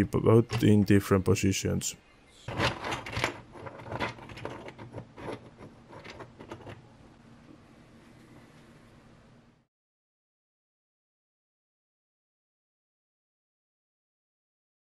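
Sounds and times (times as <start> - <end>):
figure set on table: 0.2 - 1.1, 2.5 - 6.9.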